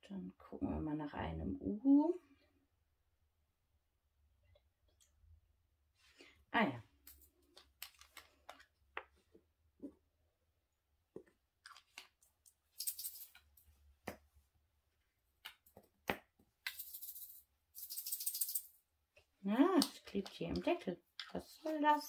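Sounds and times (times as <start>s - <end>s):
tiny beads rattling in a bottle: 12.7s - 13.4s, 16.7s - 18.8s.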